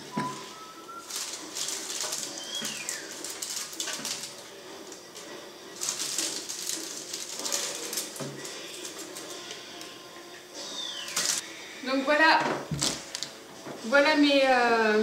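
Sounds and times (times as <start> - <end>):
parchment paper rustling: 1.0 - 9.9.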